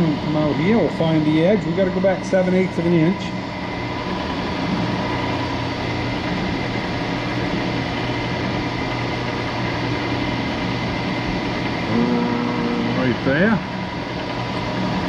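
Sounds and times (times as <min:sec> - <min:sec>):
milling machine motor hum: 0:00.0 - 0:15.0
faint high whine: 0:05.0 - 0:13.8.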